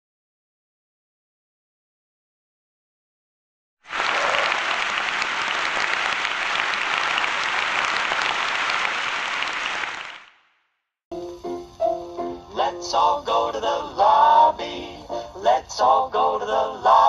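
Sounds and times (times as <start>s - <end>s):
audience applause: 3.9s - 10.4s.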